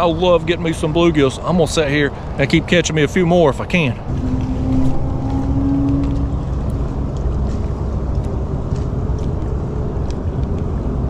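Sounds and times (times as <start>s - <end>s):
boat motor rumbling: 0.0s - 11.0s.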